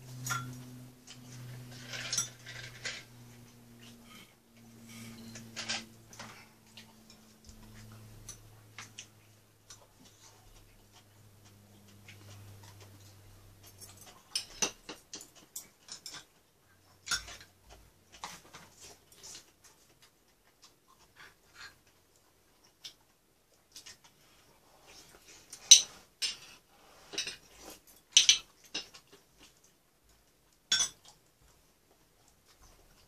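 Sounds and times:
faint low hum: 0.0s - 33.0s
chopsticks and spoons clicking dishes: 10.5s - 16.3s, 17.0s - 17.5s, 28.1s - 29.1s, 30.7s - 31.1s.

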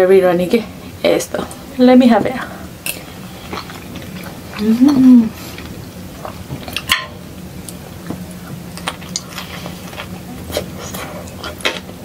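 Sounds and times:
wet chewing: 2.9s - 6.9s, 7.6s - 12.0s.

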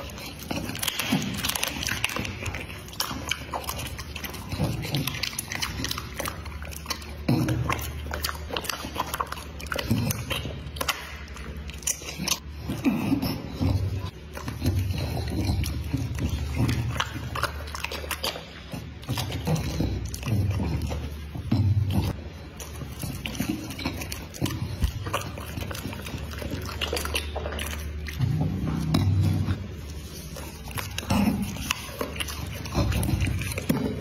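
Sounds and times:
dog chewing and licking: 0.0s - 34.0s.

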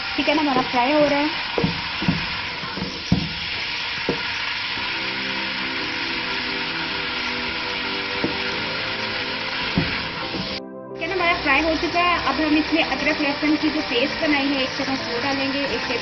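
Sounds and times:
chicken sizzling in hot oil: 0.0s - 16.0s
wooden spatula knocking pot: 1.5s - 4.3s, 8.2s - 8.5s, 9.6s - 10.6s.

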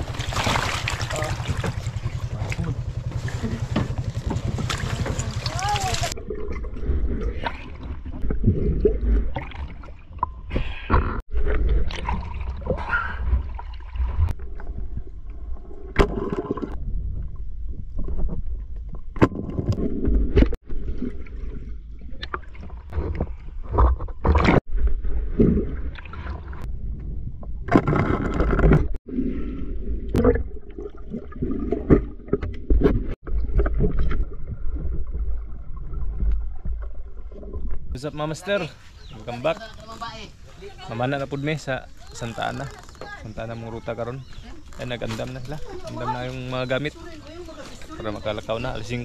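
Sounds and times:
river water splashing: 0.0s - 6.6s
low rumble: 0.0s - 23.7s, 24.6s - 38.4s
knocks and scrapes: 1.3s - 6.2s, 22.2s - 25.8s, 27.0s - 29.0s.

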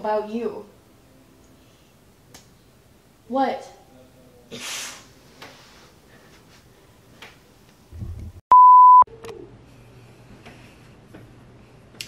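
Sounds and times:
censor bleep: 8.5s - 9.1s.

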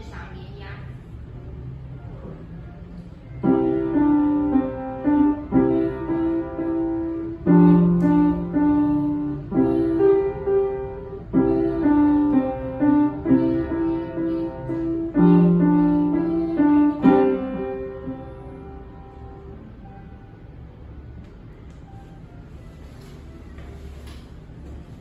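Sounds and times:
child playing piano melody: 2.1s - 20.7s.

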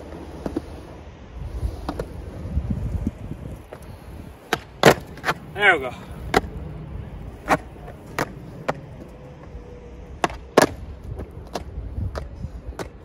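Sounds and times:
skateboard wheels rumbling: 0.0s - 13.0s
skateboard clacks: 1.8s - 2.3s, 3.6s - 13.0s.

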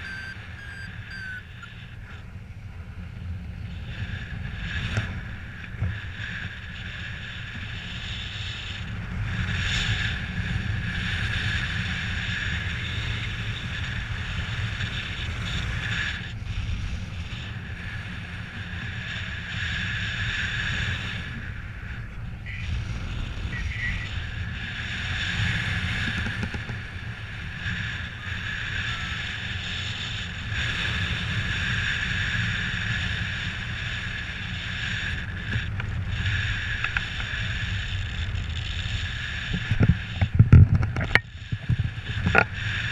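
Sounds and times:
high wind whistle: 0.0s - 2.3s
wind rushing over microphone: 0.0s - 42.9s.

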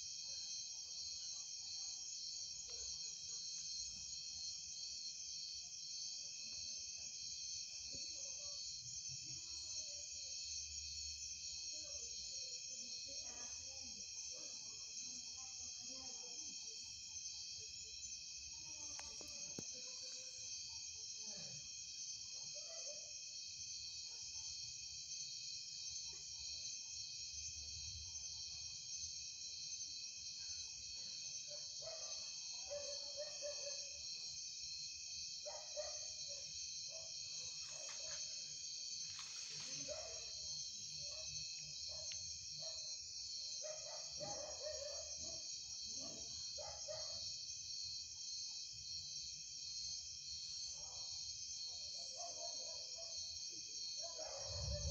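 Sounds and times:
crickets trilling: 2.1s - 9.0s, 24.9s - 54.9s.

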